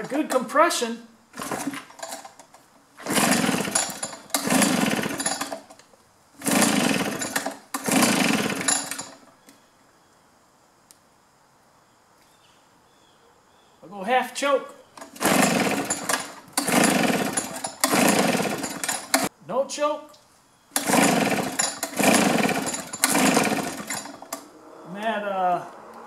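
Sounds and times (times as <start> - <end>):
engine cranking over: 1.3 - 9.3, 15.0 - 19.3, 20.8 - 24.5
recoil starter pulls: 1.3 - 9.3, 15.0 - 19.3, 20.7 - 24.5.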